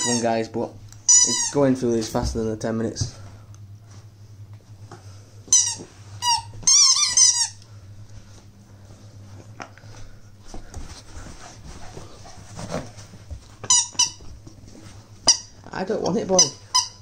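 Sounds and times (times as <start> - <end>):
dog toy squeaking: 1.1 - 1.6, 5.5 - 7.6, 13.6 - 14.2, 15.2 - 15.5, 16.3 - 17.0.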